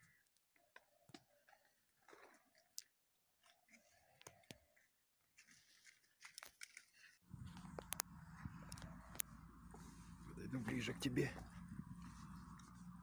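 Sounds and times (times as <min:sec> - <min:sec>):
soft rustles: 0:05.4 - 0:13.0.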